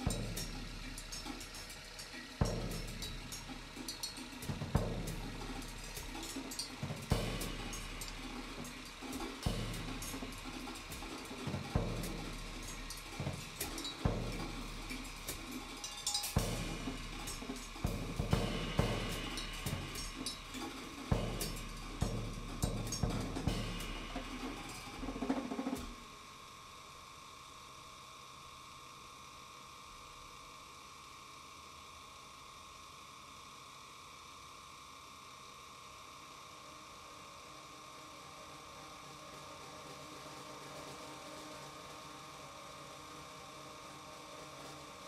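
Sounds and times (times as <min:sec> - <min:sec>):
drum kit playing: 0:00.0 - 0:26.1
amplifier electrical hum: 0:00.0 - 0:39.2.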